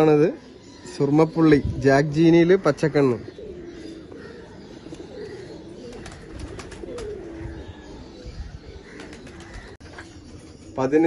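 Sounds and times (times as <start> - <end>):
pigeons cooing: 0.0 - 11.0.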